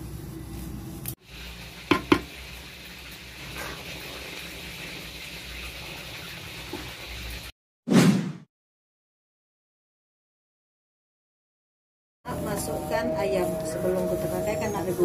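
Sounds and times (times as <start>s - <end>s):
rice sizzling in a pot: 0.0s - 7.5s.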